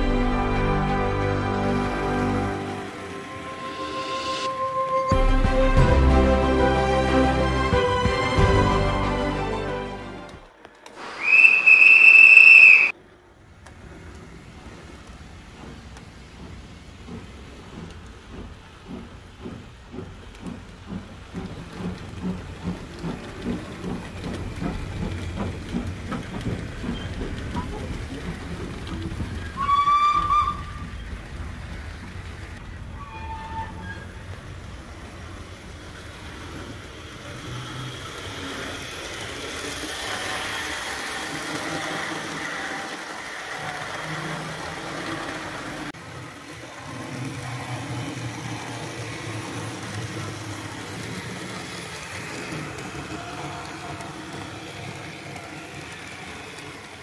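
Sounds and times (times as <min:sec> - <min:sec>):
locomotive running rumble: 0:00.0 - 0:12.7, 0:13.3 - 0:57.0
steam whistle: 0:00.0 - 0:12.9, 0:29.4 - 0:31.0, 0:32.9 - 0:34.2
steam locomotive chuffing: 0:00.0 - 0:57.0.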